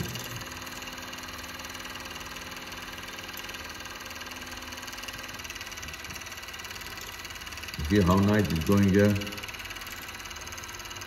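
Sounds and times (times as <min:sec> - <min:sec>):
industrial sewing machine running: 0:00.0 - 0:11.0.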